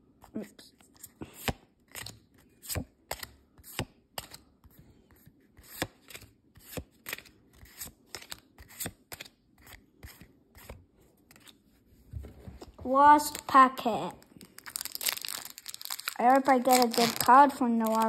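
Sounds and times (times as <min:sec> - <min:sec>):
trading cards snapping: 0:16.0 - 0:18.0.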